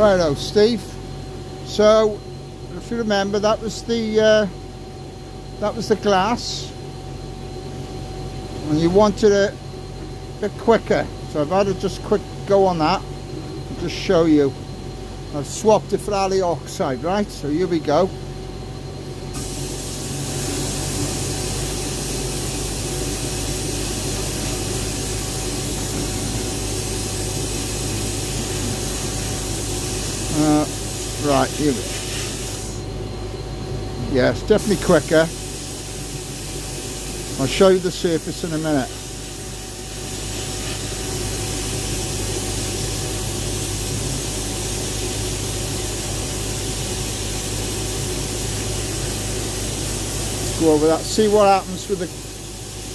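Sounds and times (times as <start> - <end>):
low machine hum: 0.0 - 52.9
sandblasting hiss: 19.3 - 33.0, 34.4 - 52.9.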